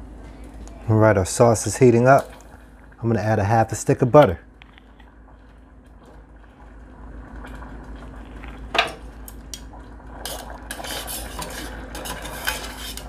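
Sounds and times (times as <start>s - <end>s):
metal tongs scraping saucepan: 10.2s - 13.0s.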